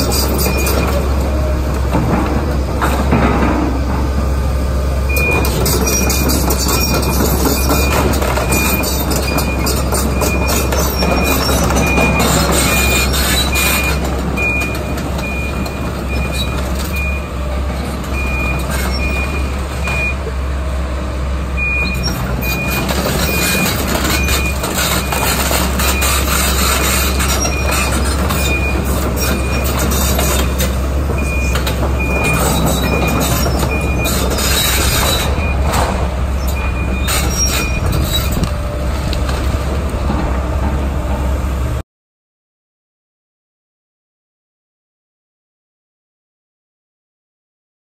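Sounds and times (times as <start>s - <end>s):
excavator diesel engine running: 0.0s - 41.8s
backup alarm beeping: 5.1s - 17.4s, 21.6s - 35.8s.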